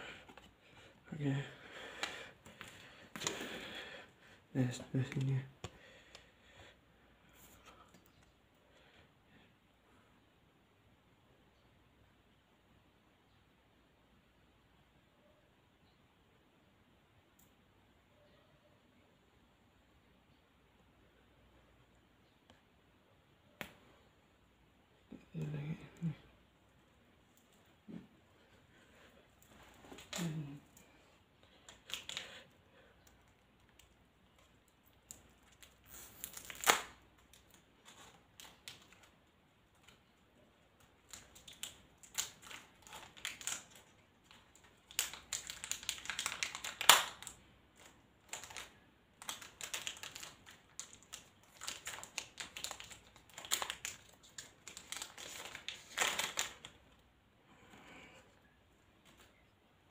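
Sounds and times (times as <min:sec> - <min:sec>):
cards and packaging crinkling: 0:00.0 - 0:04.0, 0:29.0 - 0:57.0.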